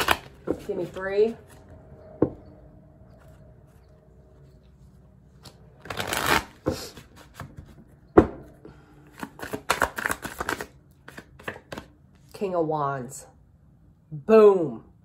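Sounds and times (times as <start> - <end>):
cards riffling: 5.4 - 7.6, 9.1 - 11.9.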